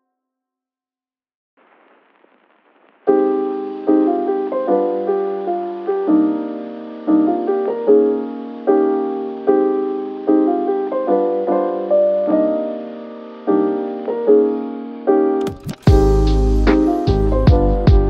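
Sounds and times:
faint hiss: 1.6s - 15.1s
piano chords ringing: 3.1s - 18.0s.

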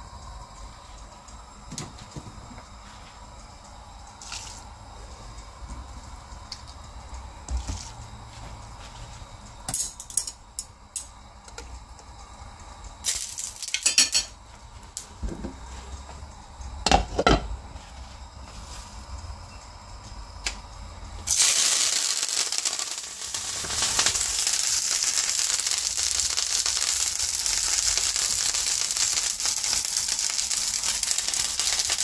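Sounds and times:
noodles rustling in a pot: 21.3s - 32.0s.

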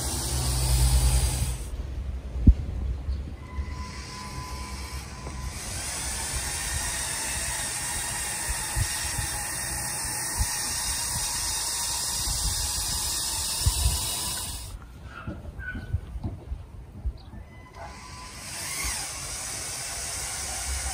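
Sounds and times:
toy motors whirring: 0.0s - 1.7s, 3.6s - 14.8s, 17.8s - 20.9s.

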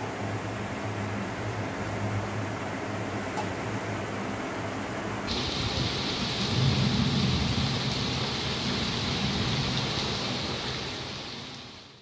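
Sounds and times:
heavy rain pouring: 5.3s - 12.0s.

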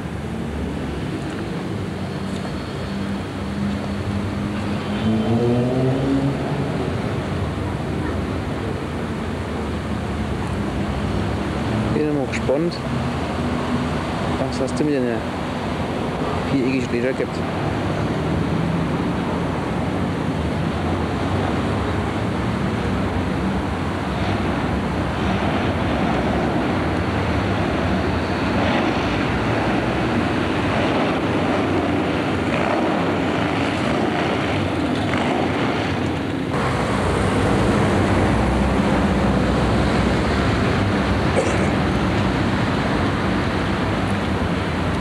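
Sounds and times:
excavator diesel engines running: 22.5s - 45.0s.

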